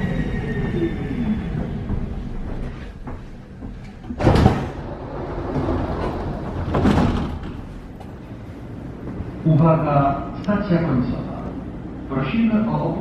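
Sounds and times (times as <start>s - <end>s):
train doors sliding open: 1.4s - 9.6s.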